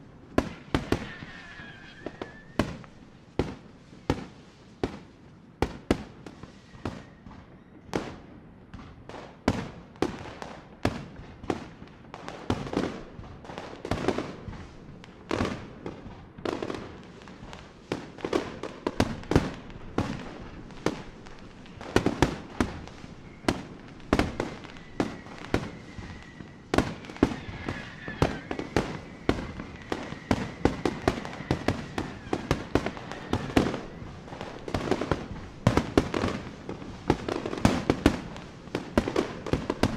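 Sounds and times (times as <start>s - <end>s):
fireworks bangs: 0.0s - 39.9s
faint high whistle: 0.9s - 2.9s, 6.4s - 7.9s, 22.4s - 34.1s.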